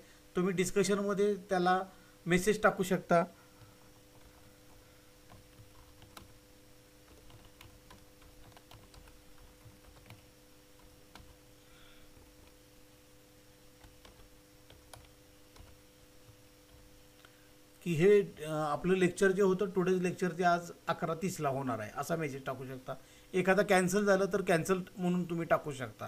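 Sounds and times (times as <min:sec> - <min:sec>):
faint electrical hum: 0:00.0 - 0:26.0
keystrokes on computer keyboard: 0:03.6 - 0:06.4, 0:07.1 - 0:11.4, 0:13.8 - 0:16.8.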